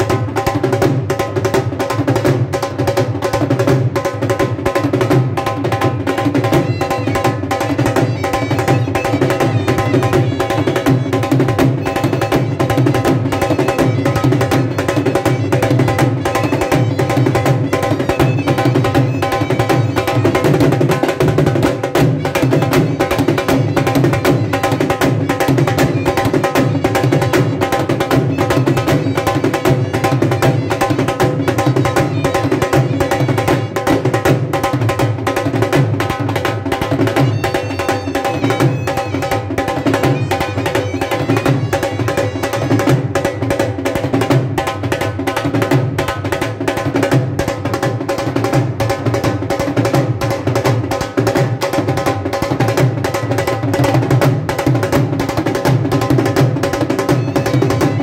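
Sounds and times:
drums playing fast rhythm: 0.0 - 58.0.

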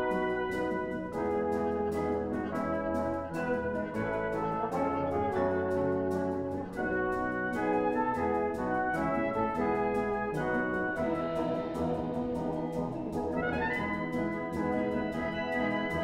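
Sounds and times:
brass band playing chords: 0.0 - 16.0.

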